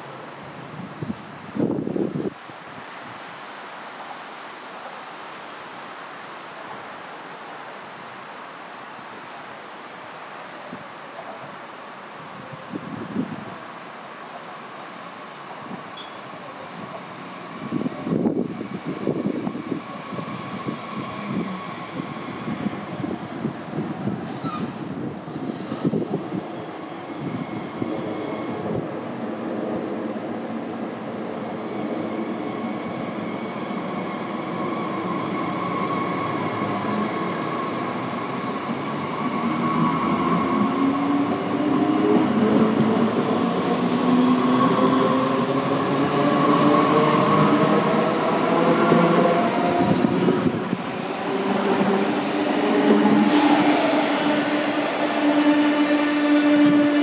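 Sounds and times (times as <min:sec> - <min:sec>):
falling tone of approaching train: 0:11.5 - 0:57.0
electric train whine: 0:25.0 - 0:57.0.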